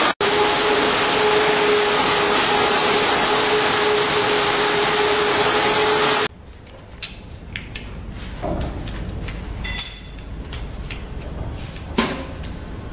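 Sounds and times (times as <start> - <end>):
drum polisher rushing hum: 0.0 - 6.3.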